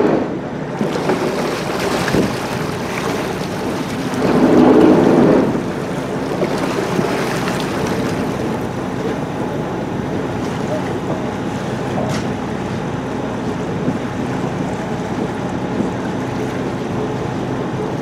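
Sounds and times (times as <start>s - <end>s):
wind buffeting microphone: 0.0s - 10.4s
boat diesel engines droning: 0.0s - 18.0s
water along hull: 0.0s - 18.0s.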